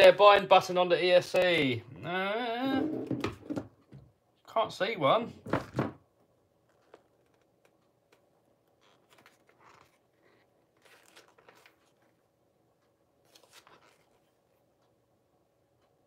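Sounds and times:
paper rustling: 8.8 - 12.2, 13.2 - 14.4.

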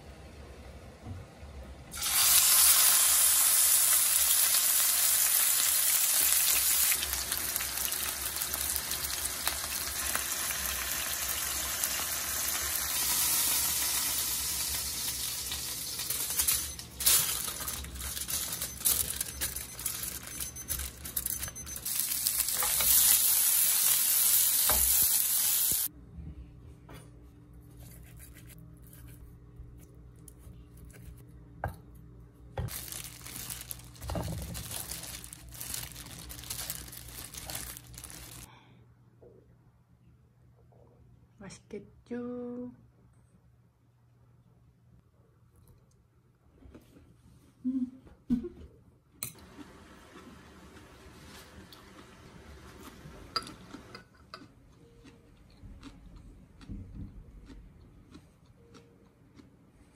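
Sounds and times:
steak sizzling in a hot pan: 22.0 - 25.9.

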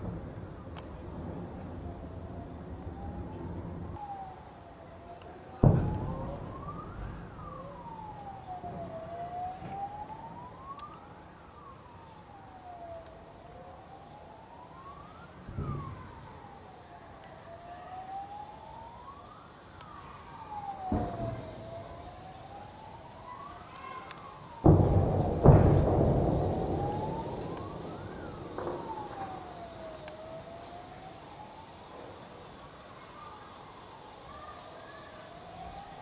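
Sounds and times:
siren wailing: 0.6 - 36.0
shelling explosions booming: 5.6 - 9.0, 20.8 - 22.1, 24.6 - 30.1.

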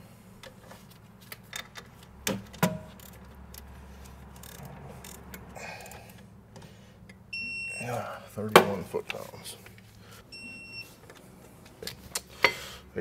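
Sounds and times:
wrench clicking on metal bolts: 1.5 - 3.7, 4.3 - 5.5.

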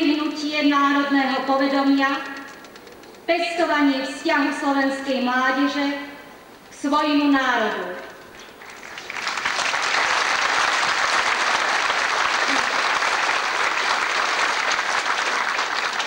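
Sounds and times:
crowd applauding: 8.5 - 16.0.

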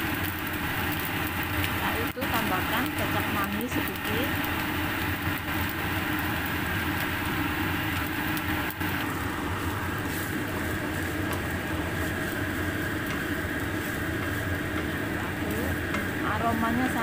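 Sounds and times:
cooktop hum: 0.0 - 17.0
rice sizzling in a pan: 0.0 - 17.0
wooden spatula scraping pan: 9.6 - 17.0.

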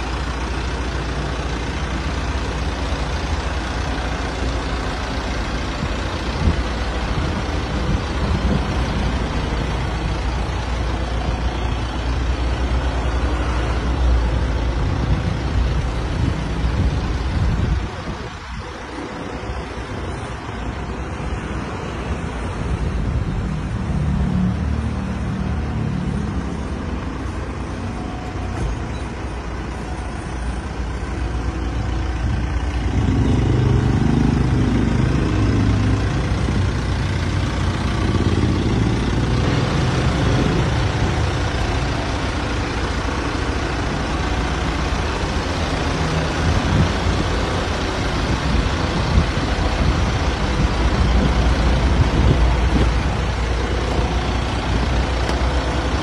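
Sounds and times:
diesel minibus engine rumble: 0.0 - 56.0.

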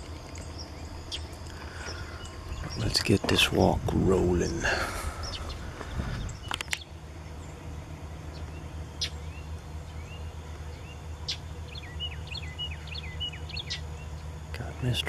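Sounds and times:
low rumble on microphone: 0.0 - 11.0
songbirds chirping: 0.0 - 15.0.

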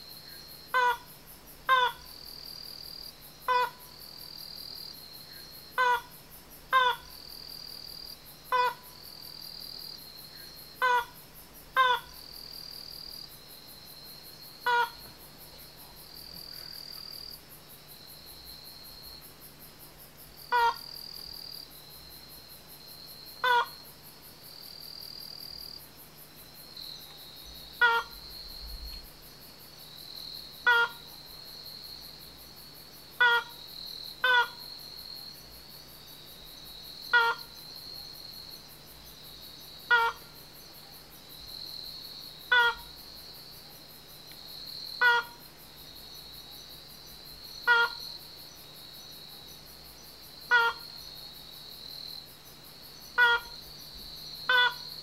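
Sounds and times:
bird calling: 27.8 - 28.2, 30.7 - 31.0, 47.7 - 48.0, 50.5 - 50.9, 53.2 - 53.5, 54.5 - 54.9.

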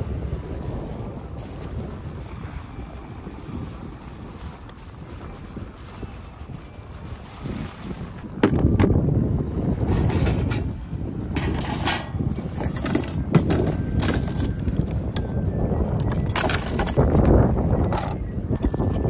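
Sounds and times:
wind rumble on microphone: 0.0 - 19.0
metal trays and utensils clattering: 9.8 - 10.7, 11.3 - 14.7, 16.2 - 17.1.

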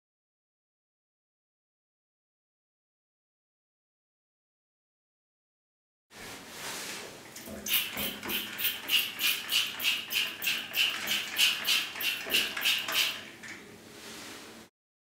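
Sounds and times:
trigger sprayer squirting: 7.6 - 13.3.

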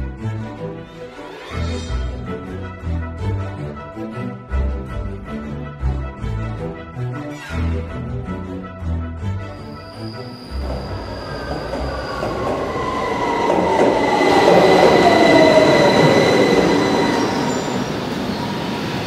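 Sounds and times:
train wheels rumbling on rails: 10.5 - 19.0.

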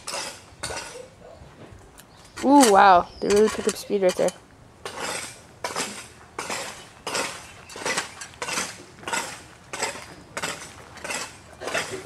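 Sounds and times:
footsteps on gravel: 4.9 - 12.0.

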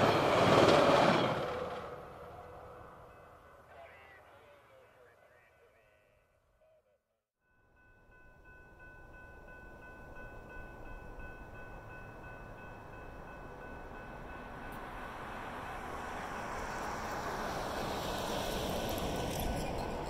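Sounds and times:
train rumble: 0.0 - 4.9, 8.2 - 20.0
level-crossing bell ringing: 7.5 - 15.6.

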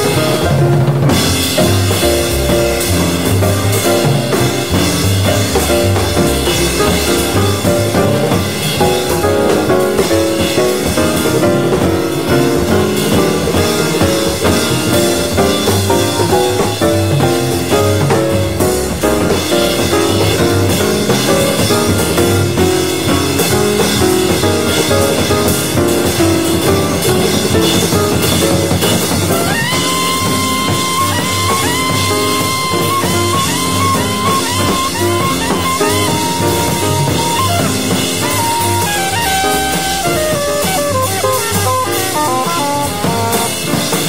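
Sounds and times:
jazz with drum kit: 0.0 - 44.0.

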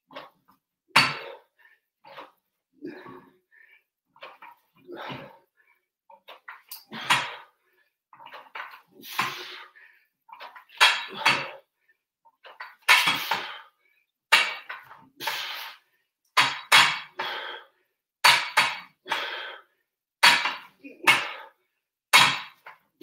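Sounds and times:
short sharp bursts of breath: 15.2 - 16.0.

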